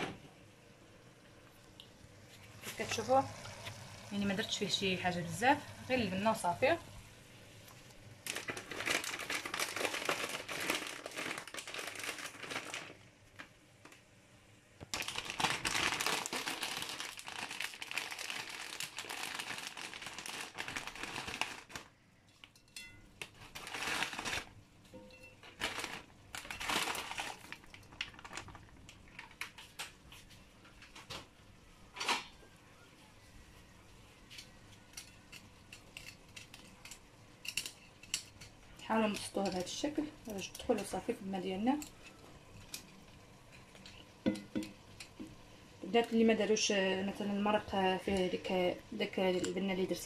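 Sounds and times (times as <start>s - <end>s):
plastic packet crinkling: 8.2s - 14.0s, 14.8s - 22.0s, 23.2s - 24.6s, 25.4s - 30.0s.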